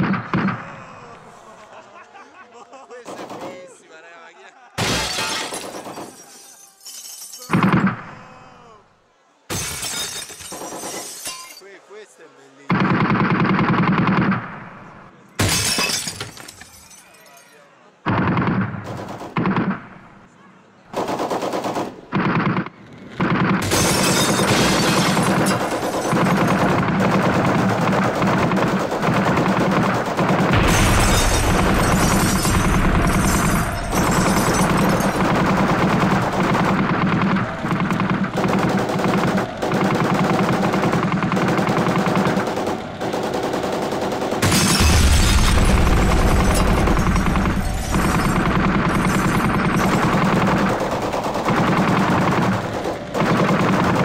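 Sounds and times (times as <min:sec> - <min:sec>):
dense rapid crackling rattle: 0:23.2 - 0:54.0.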